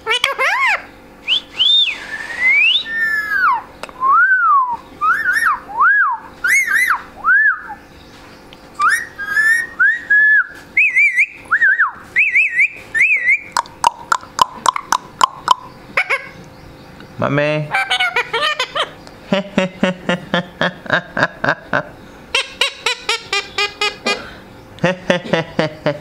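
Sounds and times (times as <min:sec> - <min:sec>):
parakeet whistling: 0:00.4 - 0:07.8, 0:08.8 - 0:16.4.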